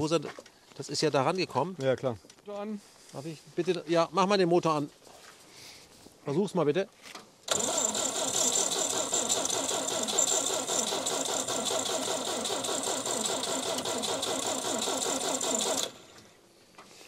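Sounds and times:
engine cranking by starter: 0:07.5 - 0:16.3.

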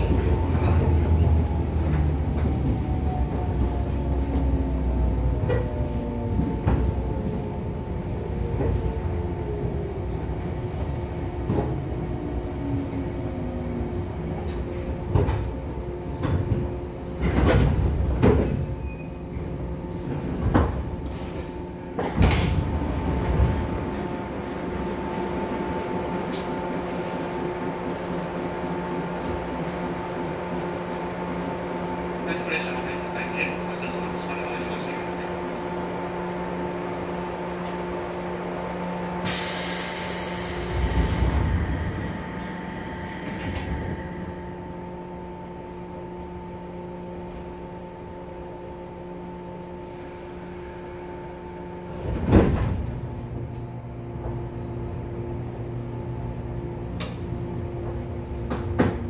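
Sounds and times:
train motor and gear whine: 0:00.0 - 0:59.0
clunks and thumps: 0:52.0 - 0:53.0.

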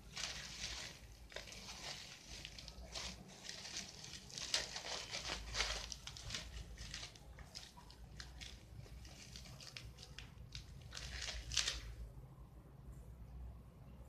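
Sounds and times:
bubble wrap crinkling: 0:00.0 - 0:12.1.

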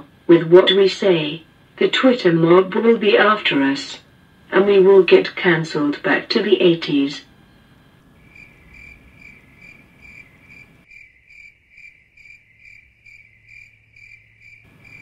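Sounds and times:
crickets chirping: 0:06.7 - 0:15.0.

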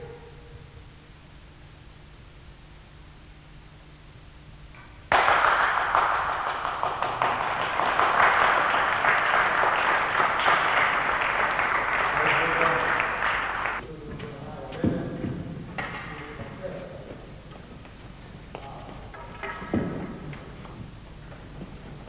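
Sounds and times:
group of people clapping: 0:05.1 - 0:13.8.

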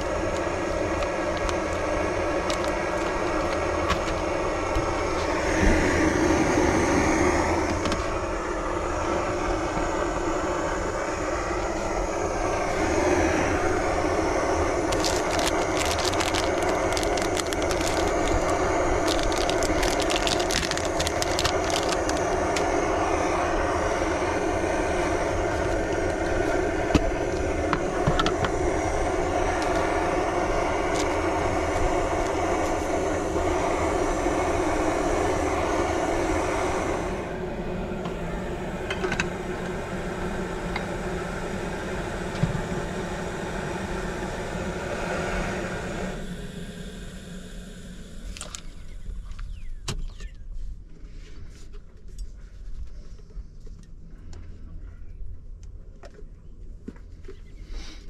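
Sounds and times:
gas burner roaring: 0:00.0 - 0:50.3
crinkling and clicking handling: 0:00.2 - 0:04.3, 0:14.8 - 0:22.7.

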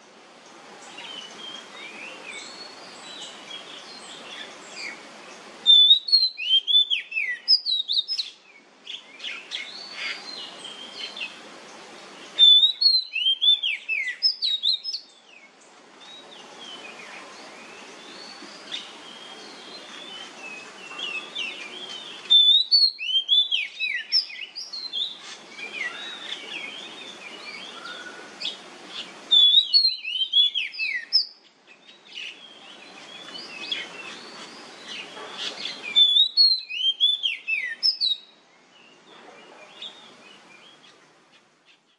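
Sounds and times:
low background noise: 0:00.0 - 0:41.9
bird singing whistled phrases: 0:05.6 - 0:08.4, 0:12.4 - 0:15.1, 0:20.9 - 0:26.8, 0:29.3 - 0:31.4, 0:35.4 - 0:38.3.

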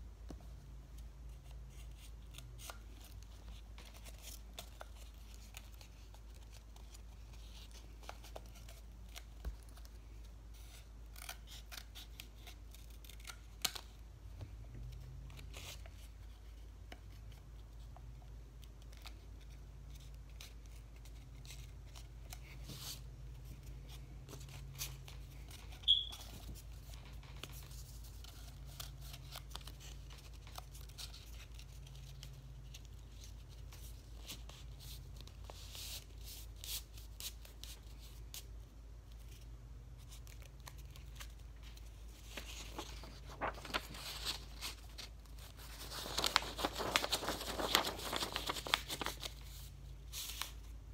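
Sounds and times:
paper crinkling and tearing: 0:40.0 - 0:50.6.

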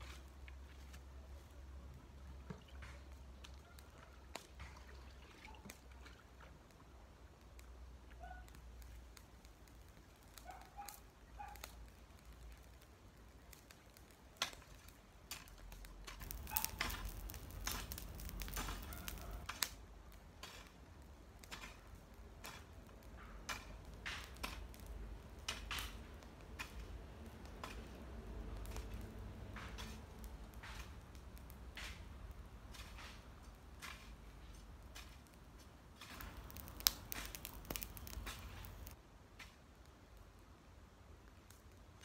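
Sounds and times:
hoe chopping and scraping soil: 0:15.3 - 0:19.7, 0:20.3 - 0:20.8, 0:21.4 - 0:39.6.

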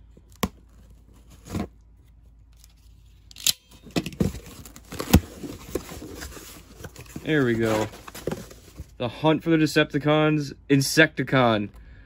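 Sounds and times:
cardboard scraping: 0:00.7 - 0:01.8, 0:04.2 - 0:09.0
tape tearing: 0:02.5 - 0:08.8.

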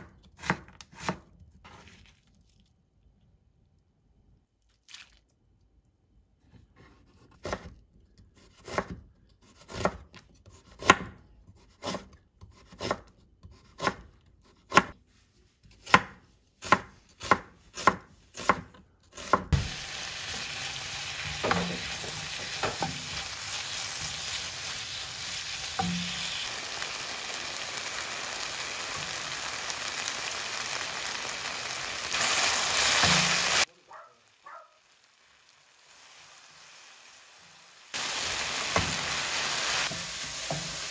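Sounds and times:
knife chopping on wooden board: 0:00.0 - 0:01.3, 0:07.1 - 0:07.8, 0:08.5 - 0:14.9, 0:15.8 - 0:19.8
potato sizzling in pan: 0:19.5 - 0:40.9.

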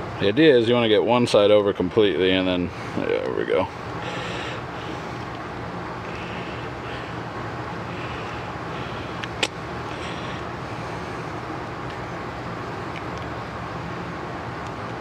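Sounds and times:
air compressor running: 0:02.7 - 0:12.8.

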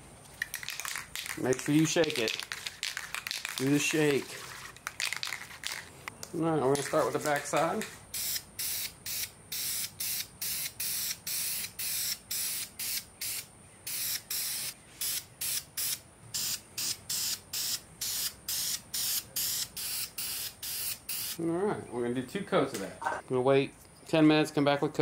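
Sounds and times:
spray paint hissing bursts: 0:00.5 - 0:05.9, 0:06.8 - 0:21.4.

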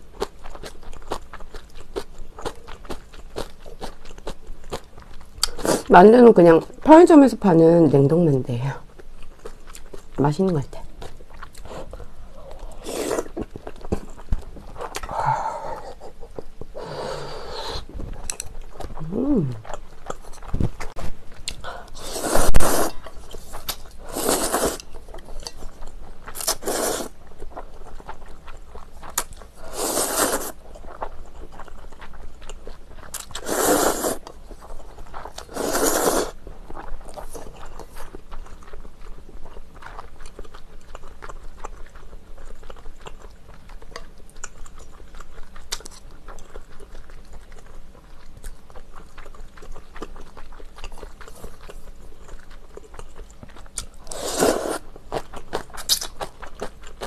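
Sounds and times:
chewing: 0:00.0 - 0:05.9, 0:08.8 - 0:57.0
noodles slurped: 0:21.9 - 0:24.9, 0:26.4 - 0:27.2, 0:29.1 - 0:30.6, 0:33.1 - 0:34.3, 0:35.3 - 0:36.4, 0:53.8 - 0:54.9.

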